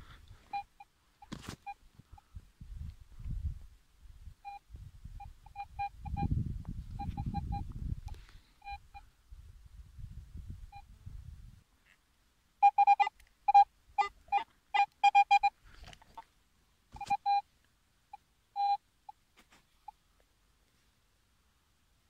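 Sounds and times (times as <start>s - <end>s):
metal detector beeps: 0.5s - 1.8s, 4.4s - 4.6s, 5.2s - 6.3s, 7.0s - 7.7s, 8.6s - 9.0s, 12.6s - 15.6s, 17.0s - 17.5s, 18.1s - 19.2s.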